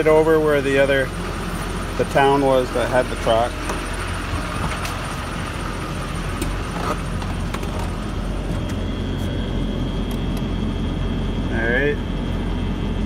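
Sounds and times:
truck engine idling: 0:00.0 - 0:13.0
faint high whine: 0:08.0 - 0:13.0.

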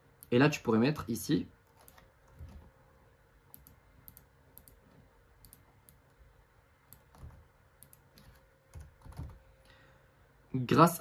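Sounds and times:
computer keyboard typing: 0:01.6 - 0:02.7, 0:03.5 - 0:06.2, 0:06.9 - 0:09.4.

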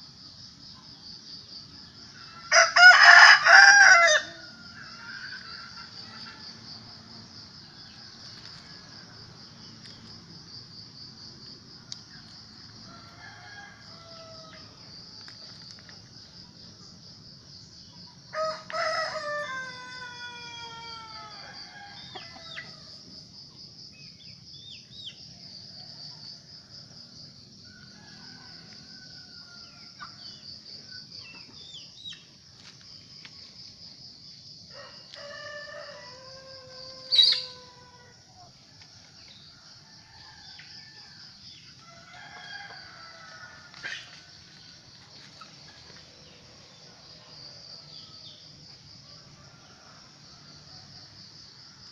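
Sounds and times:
insects chirring: 0:00.0 - 0:51.9
rooster crowing: 0:02.0 - 0:06.6, 0:12.7 - 0:14.9, 0:18.2 - 0:23.0, 0:27.6 - 0:30.4, 0:34.7 - 0:38.4, 0:39.5 - 0:44.5.

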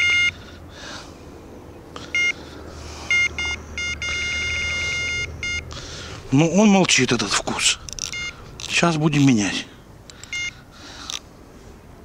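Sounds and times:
electronic bite alarm beeping: 0:00.0 - 0:00.4, 0:02.1 - 0:02.4, 0:03.1 - 0:05.7, 0:08.0 - 0:08.7, 0:10.3 - 0:10.6.

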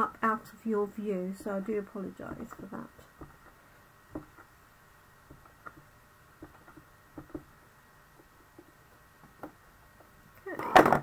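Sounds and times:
ink pad tapping rubber stamp: 0:05.3 - 0:07.5.

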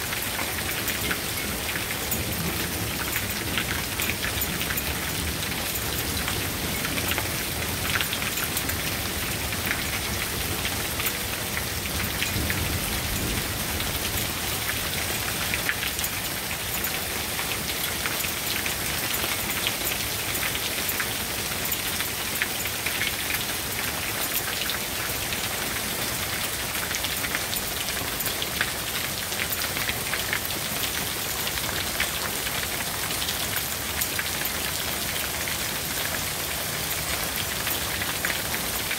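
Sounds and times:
hail and rain pattering: 0:00.0 - 0:38.9
hailstones ticking on concrete: 0:00.0 - 0:38.9.

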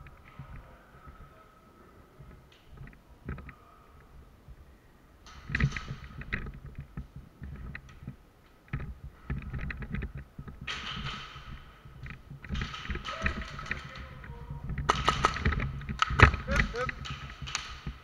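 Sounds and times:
sharp clicks and taps: 0:14.7 - 0:18.0.

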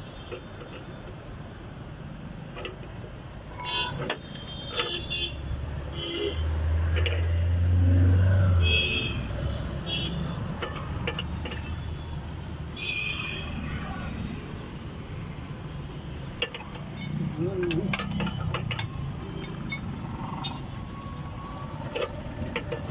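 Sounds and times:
scattered clicks and knocks: 0:02.5 - 0:05.1, 0:06.2 - 0:07.3, 0:10.4 - 0:12.0, 0:15.3 - 0:20.7, 0:21.8 - 0:22.9
vehicle engine rumble: 0:14.0 - 0:22.9.

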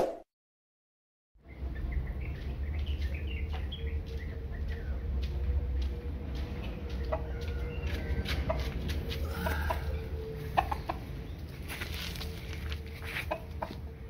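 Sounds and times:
steady low rumble: 0:01.4 - 0:14.0
rooster clucking: 0:06.9 - 0:11.4, 0:13.0 - 0:13.8.

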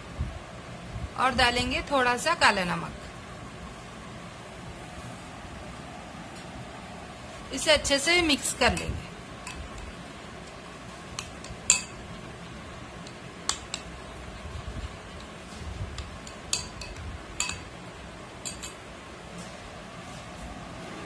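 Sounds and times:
soft stirring: 0:08.3 - 0:17.8, 0:18.4 - 0:20.4
spoon clinking against glass bowl: 0:11.4 - 0:12.0, 0:16.2 - 0:17.7, 0:18.4 - 0:18.8.

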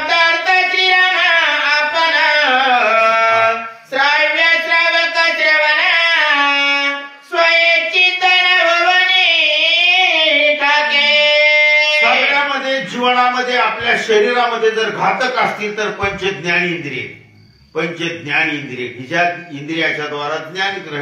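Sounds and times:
man singing devotional melody: 0:00.0 - 0:14.5.

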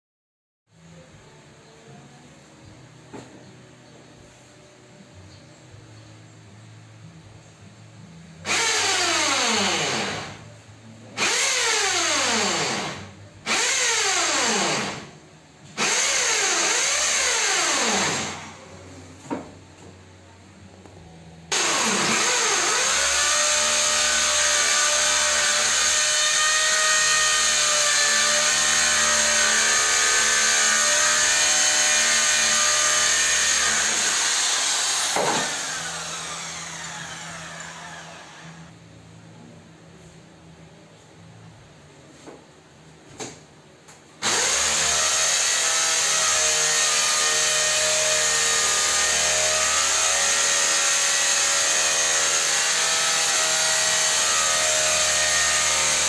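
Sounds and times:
electric drill drilling into ceiling: 0:08.5 - 0:10.4, 0:11.2 - 0:15.1, 0:15.8 - 0:18.6, 0:21.5 - 0:38.7, 0:44.2 - 0:56.0.

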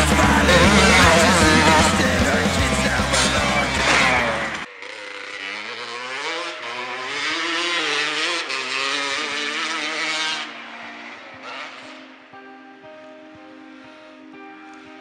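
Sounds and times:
motocross bike engine revving: 0:00.0 - 0:12.2.

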